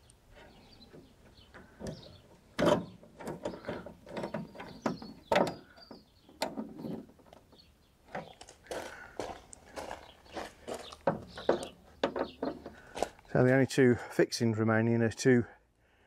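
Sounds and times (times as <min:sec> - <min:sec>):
hand tools clicking and knocking: 0:10.9 - 0:12.9.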